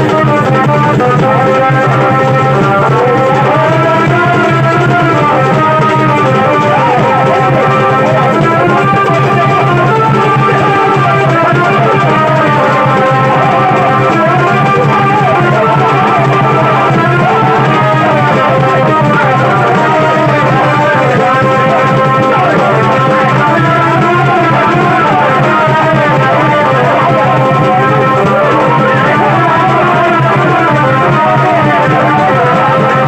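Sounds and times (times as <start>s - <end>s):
music with drums and gliding melody: 0.0s - 33.0s.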